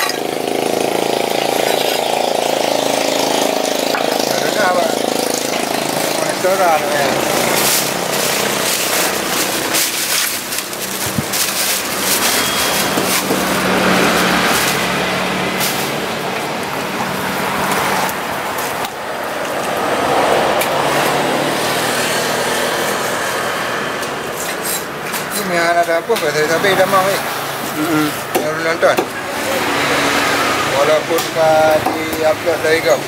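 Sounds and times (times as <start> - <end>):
road traffic: 0.0 - 33.0
vehicles passing: 0.0 - 33.0.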